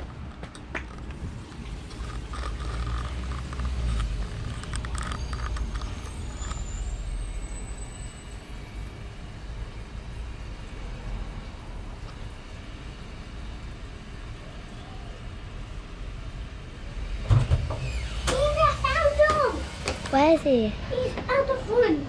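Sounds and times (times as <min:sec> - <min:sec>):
camera handling clicks and rustles: 0:00.0 - 0:06.0
wind buffeting microphone: 0:00.0 - 0:06.4.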